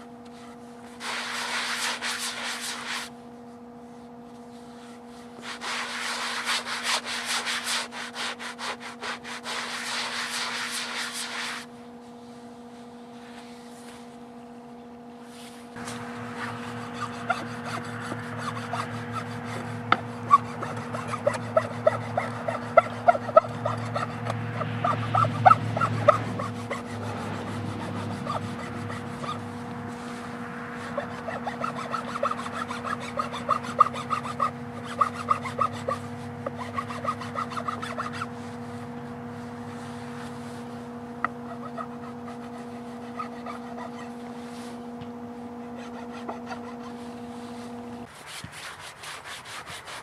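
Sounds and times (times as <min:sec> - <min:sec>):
blade scraping wood with squeaks: 0:00.2 - 0:03.1, 0:04.5 - 0:11.7, 0:15.4 - 0:50.0
sanding block rubbing wood: 0:00.4 - 0:03.1, 0:04.6 - 0:11.7, 0:15.8 - 0:44.8, 0:45.6 - 0:50.0.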